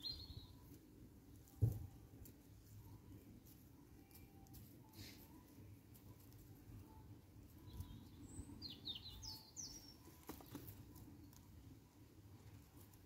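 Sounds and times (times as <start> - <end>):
bird chirping: 0.0 - 0.8, 6.8 - 11.4.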